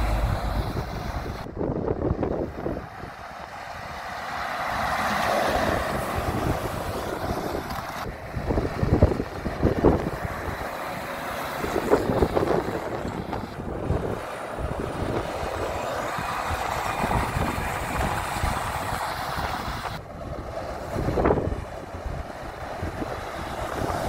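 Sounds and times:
truck diesel engines passing: 0.0s - 24.0s
wind rumbling on microphone: 0.0s - 24.0s.

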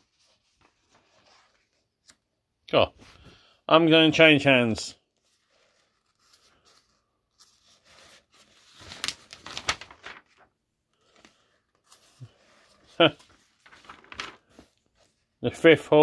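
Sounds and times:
paper pages rustling: 0.0s - 2.2s, 5.1s - 15.3s.

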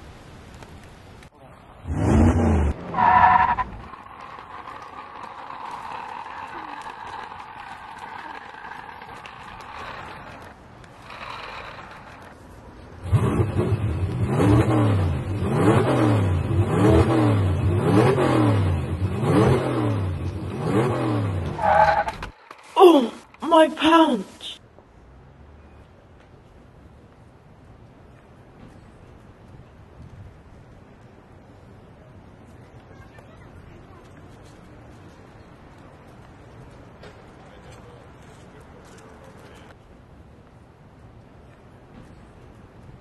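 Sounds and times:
toy car engine revving: 3.7s - 12.4s.

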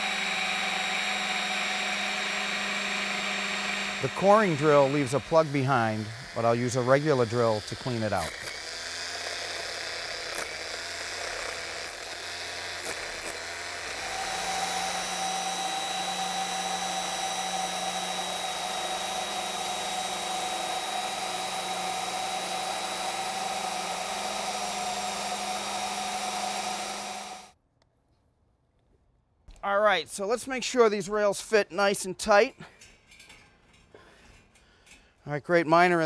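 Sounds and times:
drill bit knocks: 0.0s - 27.5s
electric drill boring into stone: 0.0s - 27.6s.

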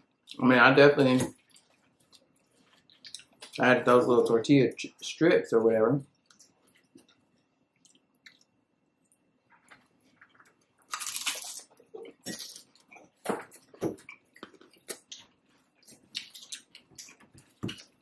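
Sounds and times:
crunchy chewing: 6.1s - 18.0s.

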